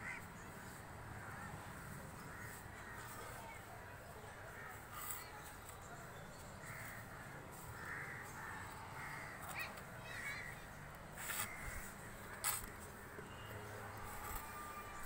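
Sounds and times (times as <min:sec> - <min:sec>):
crows cawing: 0:00.0 - 0:00.2, 0:02.2 - 0:03.1, 0:06.6 - 0:10.6, 0:11.3 - 0:12.1.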